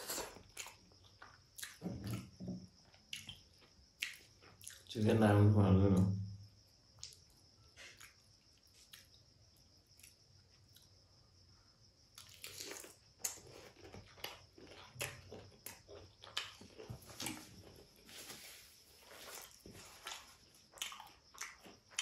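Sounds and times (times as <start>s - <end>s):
chewing crunchy food: 0.0s - 4.9s, 7.0s - 9.3s, 12.2s - 22.0s.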